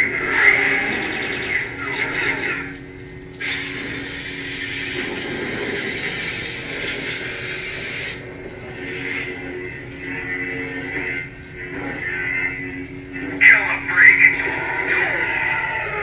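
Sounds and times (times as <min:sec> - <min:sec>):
electric blade hum: 0:00.0 - 0:16.0
harsh hissing layer: 0:03.4 - 0:16.0.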